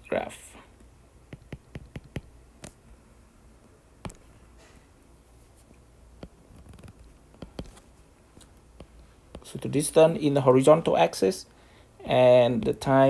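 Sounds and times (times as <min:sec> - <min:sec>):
stylus tapping on glass screen: 0:01.3 - 0:02.8, 0:04.0 - 0:04.3
faint brushing: 0:04.1 - 0:10.3.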